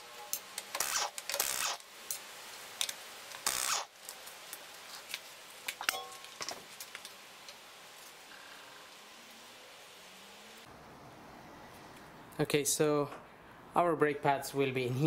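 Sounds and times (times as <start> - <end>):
pneumatic impact wrench: 0.7 - 1.8, 3.4 - 3.9.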